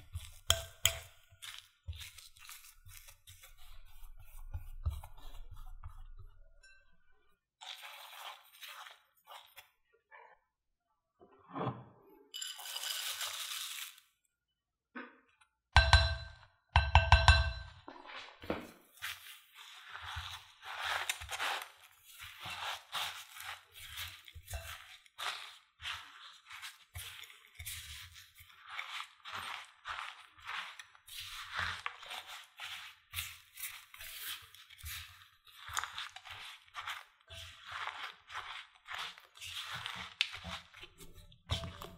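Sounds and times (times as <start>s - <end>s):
spoon tapping a ceramic bowl: 0.2s - 1.1s, 15.8s - 17.8s
oats poured into a bowl: 7.6s - 9.5s, 12.4s - 14.2s, 19.0s - 41.9s.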